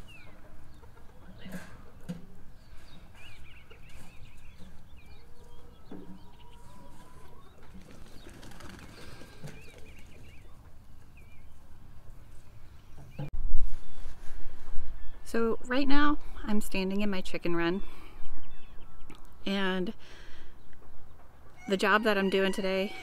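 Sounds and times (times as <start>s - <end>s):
hens clucking: 0.0s - 11.2s, 21.3s - 23.0s.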